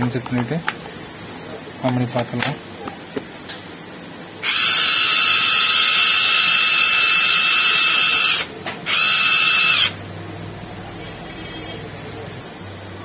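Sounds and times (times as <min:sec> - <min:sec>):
impact wrench whining: 0:04.4 - 0:10.0.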